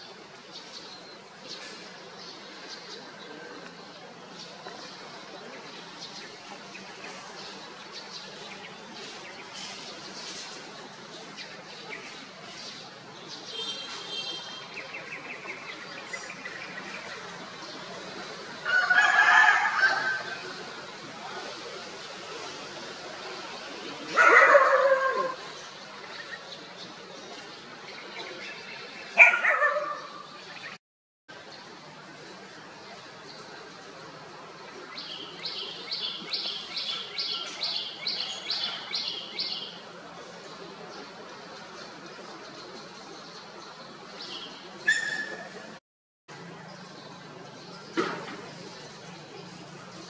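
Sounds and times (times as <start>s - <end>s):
small birds chirping: 31.4s - 45.8s.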